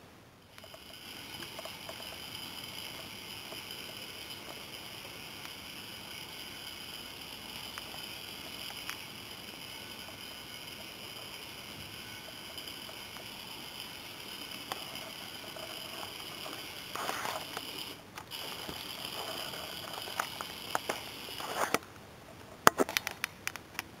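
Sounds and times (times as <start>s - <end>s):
electric motor whining: 0.5s - 21.8s
sharp clicks and taps: 22.6s - 23.9s.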